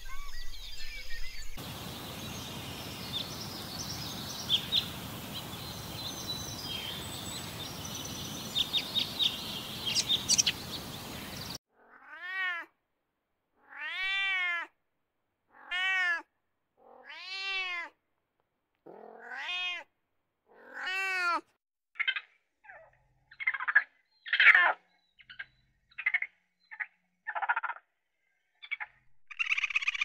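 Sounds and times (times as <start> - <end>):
short bird calls: 1.2 - 11.6
background hiss: 1.6 - 11.6
cat meowing: 11.8 - 12.7, 13.6 - 14.8, 15.5 - 18.0, 18.9 - 19.9, 20.5 - 21.5.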